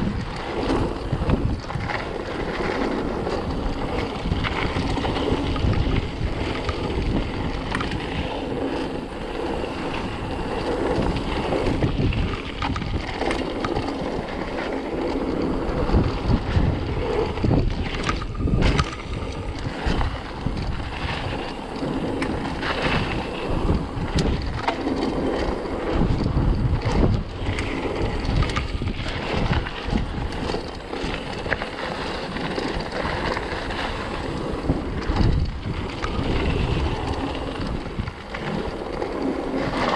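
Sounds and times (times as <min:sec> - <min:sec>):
bike rumbling on rough trail: 0:00.0 - 0:39.9
wind on microphone: 0:00.0 - 0:39.9
bike knocks and clatter: 0:11.7 - 0:14.0, 0:15.8 - 0:23.1.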